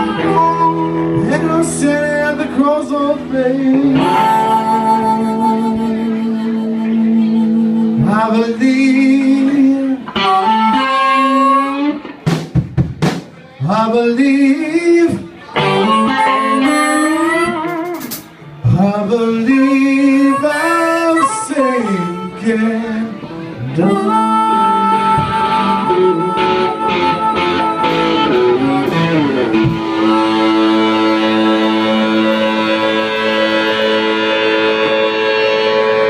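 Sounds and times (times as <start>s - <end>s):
harmonica wailing: 0.0s - 1.4s, 10.2s - 12.0s, 19.4s - 36.0s
bass guitar: 0.0s - 36.0s
electric guitar: 0.0s - 36.0s
drum kit: 12.1s - 13.6s, 17.5s - 18.4s, 25.1s - 36.0s.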